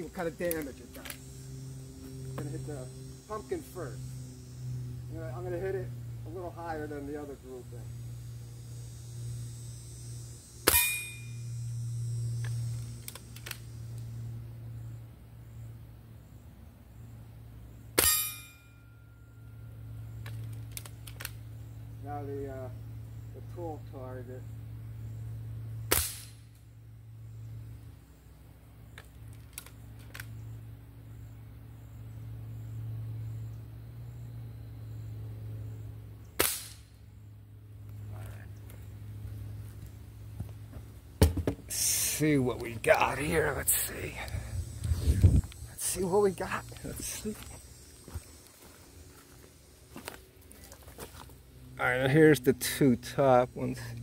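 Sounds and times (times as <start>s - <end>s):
pellet clanging on steel target: 10.6s - 11.4s, 18.0s - 18.7s
rifle barrel clicks: 20.2s - 21.4s
air rifle shot: 25.9s - 26.5s, 36.4s - 36.9s.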